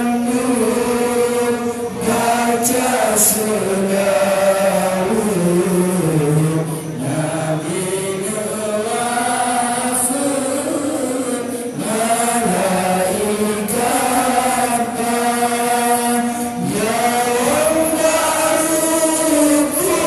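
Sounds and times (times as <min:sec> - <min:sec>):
voices chanting: 0:00.0 - 0:20.0.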